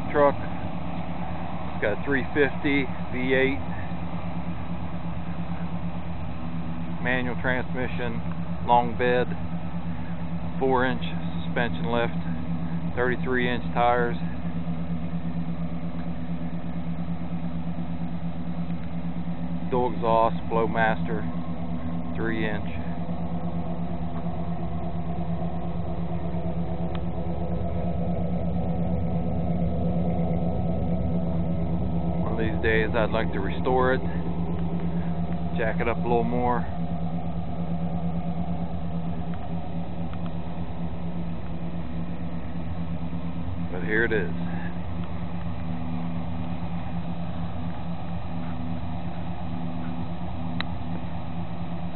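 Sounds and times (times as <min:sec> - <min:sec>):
truck engine idling: 0:00.0 - 0:51.9.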